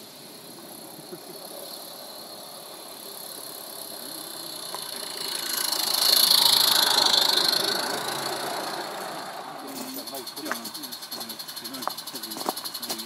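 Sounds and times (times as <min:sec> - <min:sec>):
small steam locomotive passing: 0:00.0 - 0:13.0.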